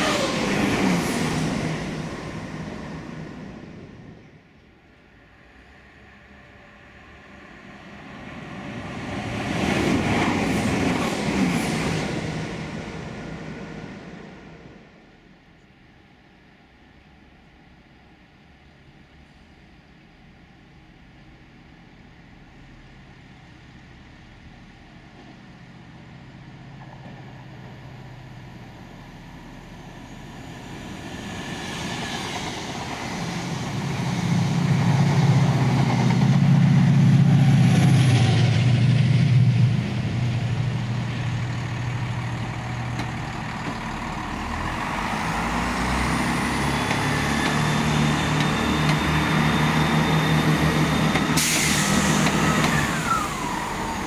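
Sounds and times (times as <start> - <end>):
diesel locomotive engine rumble: 0.0 - 54.0
diesel train engine and wheel noise: 0.0 - 54.0
steady high squeal: 44.3 - 54.0.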